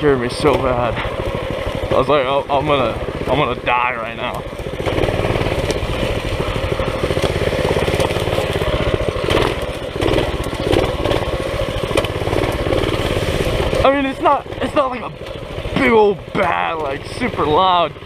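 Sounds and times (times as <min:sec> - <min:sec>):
minibike engine running: 0:00.0 - 0:18.0.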